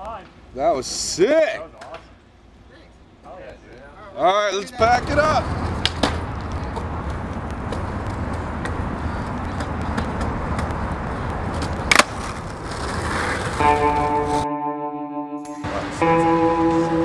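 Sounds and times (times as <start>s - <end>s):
skateboard wheels rolling on concrete: 4.6s - 14.4s
skateboard clack: 5.4s - 14.4s
guitar music: 13.5s - 17.0s.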